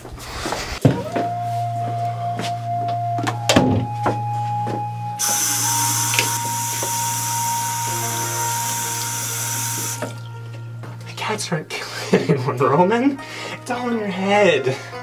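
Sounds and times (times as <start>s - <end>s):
low droning tone: 0.9s - 12.0s
water running into sink: 5.3s - 10.2s.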